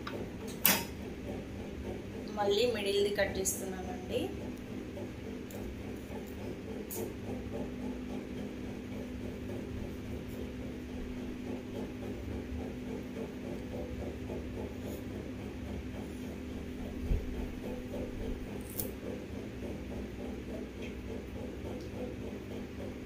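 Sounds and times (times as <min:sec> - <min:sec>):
steady low hum: 0:00.0 - 0:23.0
knife cutting leaf: 0:18.1 - 0:19.1.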